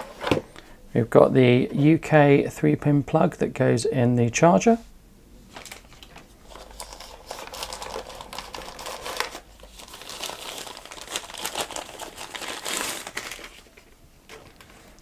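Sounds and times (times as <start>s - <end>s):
wrapping crinkling and rustling: 5.5s - 15.0s.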